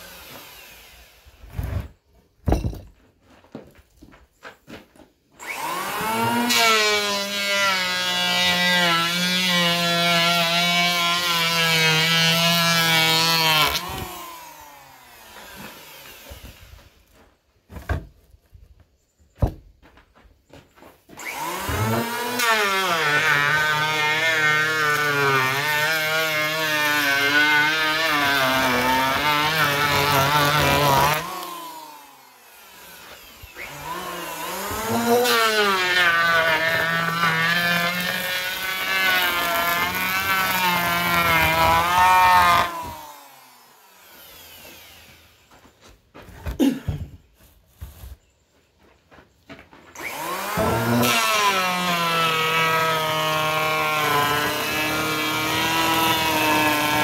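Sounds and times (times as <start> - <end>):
electric planer whining: 0.0 - 1.8, 5.4 - 17.0, 21.2 - 45.8, 50.0 - 57.0.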